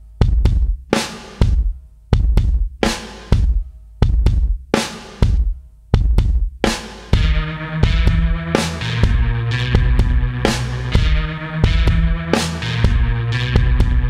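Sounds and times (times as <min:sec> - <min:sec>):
heavy drum hits with deep bass: 0:00.2 - 0:04.6, 0:05.2 - 0:14.0.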